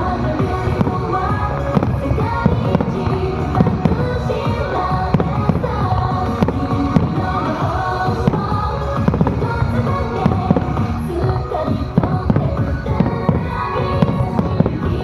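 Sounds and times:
fireworks bangs: 0:00.0 - 0:15.0
music: 0:00.0 - 0:15.0.

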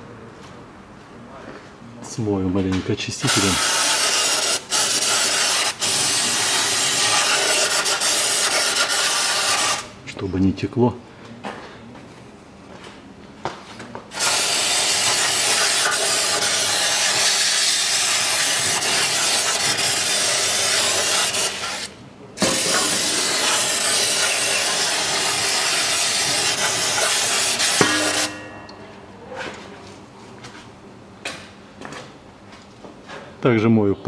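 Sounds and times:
aerosol spray hissing: 0:03.3 - 0:09.8, 0:14.2 - 0:28.3.

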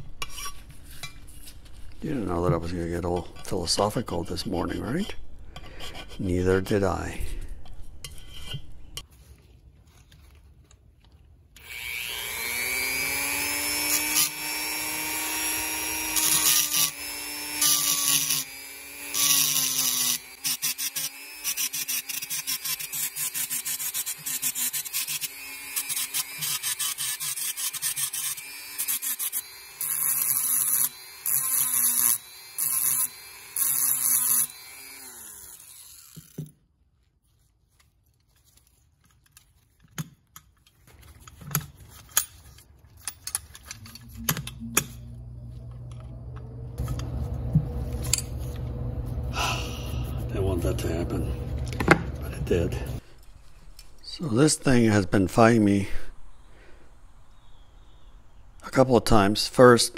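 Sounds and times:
rotary tool whining: 0:11.6 - 0:36.6.

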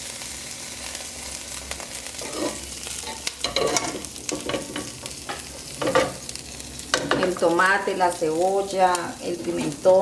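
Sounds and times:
wooden spatula scraping metal pot: 0:02.2 - 0:04.7.

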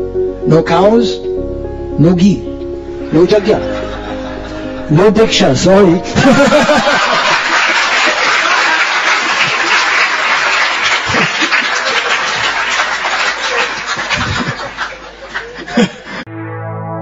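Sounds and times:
audience laughing: 0:03.1 - 0:04.9, 0:06.0 - 0:16.2
audience clapping: 0:06.6 - 0:16.0.

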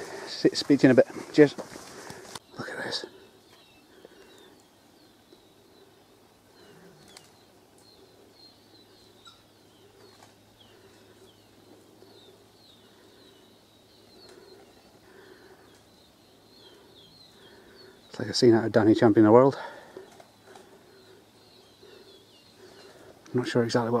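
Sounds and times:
young birds peeping: 0:00.0 - 0:24.0
softer lower bird calls: 0:01.9 - 0:18.6, 0:19.3 - 0:24.0
faint clicks: 0:07.0 - 0:08.0, 0:15.6 - 0:15.9.

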